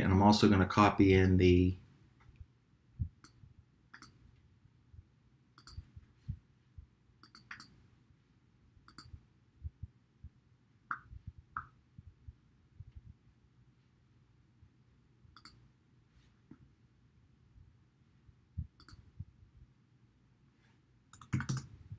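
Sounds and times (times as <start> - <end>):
computer mouse clicks: 3.2 - 4.2, 5.6 - 6.0, 7.2 - 7.8, 8.8 - 9.2, 15.3 - 15.6, 18.8 - 19.1, 21.1 - 21.8.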